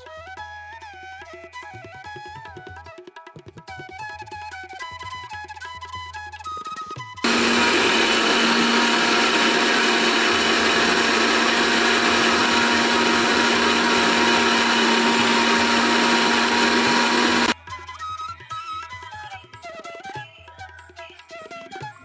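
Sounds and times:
mixer grinder running: 7.2 - 17.6.

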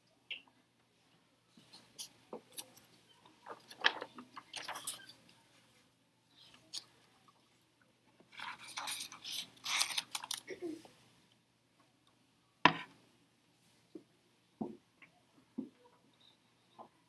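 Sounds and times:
paper rustling and scraping: 3.4 - 5.2, 8.3 - 10.5.

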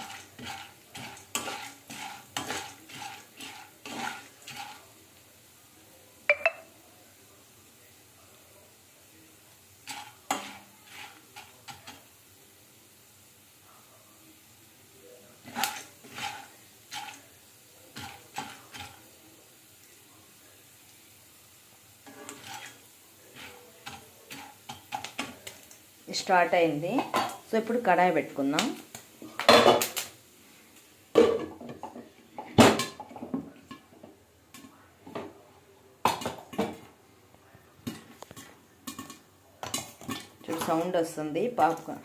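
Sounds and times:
metal spoon clinking on pan: 37.8 - 40.8.

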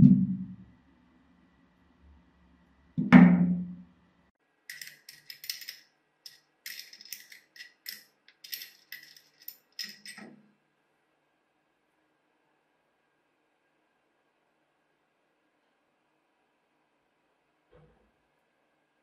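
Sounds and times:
wrench clinking on a nut: 4.7 - 10.3.

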